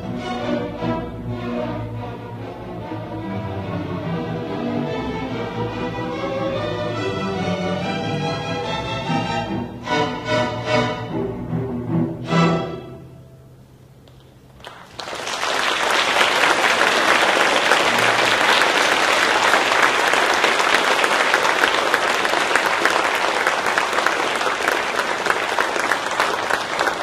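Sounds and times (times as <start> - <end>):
audience applause: 14.6 - 27.0.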